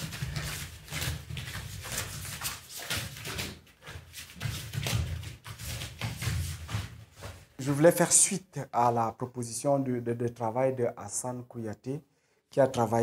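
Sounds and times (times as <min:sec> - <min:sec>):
bare feet thudding on floor: 0:00.0 - 0:07.6.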